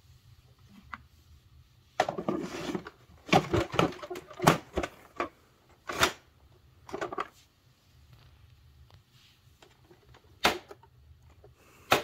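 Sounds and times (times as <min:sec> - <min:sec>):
plastic scraping: 0:02.0 - 0:06.2.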